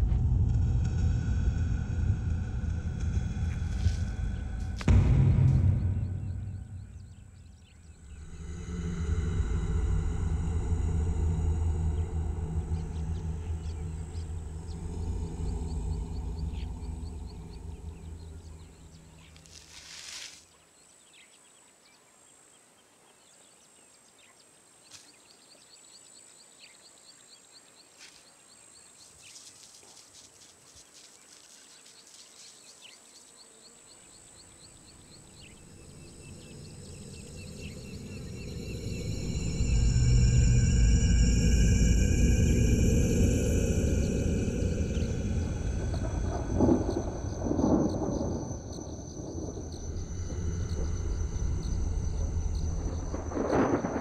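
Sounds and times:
low rumbling drone: 0.0 - 19.5, 34.6 - 54.0.

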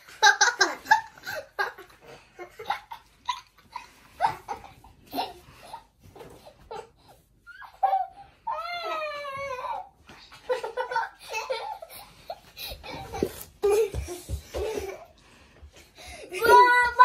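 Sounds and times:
girls laughing: 0.0 - 5.4, 10.3 - 15.2.

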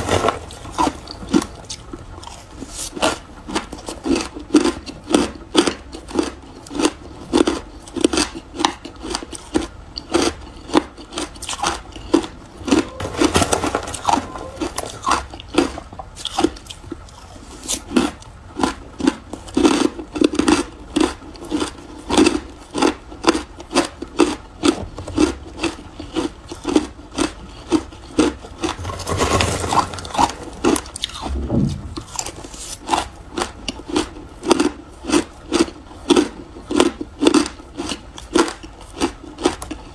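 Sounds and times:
ice being chewed: 0.0 - 31.4, 32.0 - 39.9.

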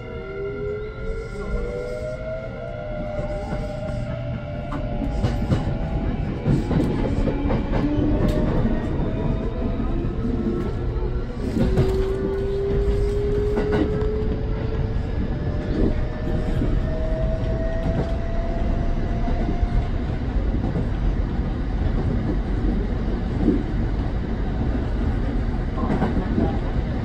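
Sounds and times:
train wheels rumbling on rail: 0.0 - 27.0
wheels clacking on rail: 19.2 - 26.9.

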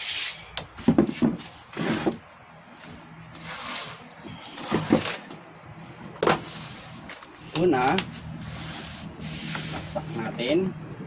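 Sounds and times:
chair and workbench knocks and scrapes: 0.8 - 2.2, 4.6 - 5.3.

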